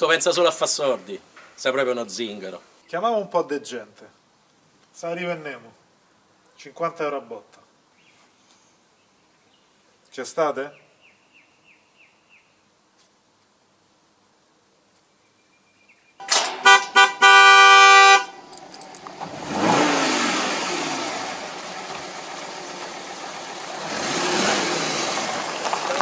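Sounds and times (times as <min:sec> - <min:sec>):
car horn toots and blast: 0:16.2 - 0:18.5
car pulling up on gravel: 0:16.2 - 0:26.0.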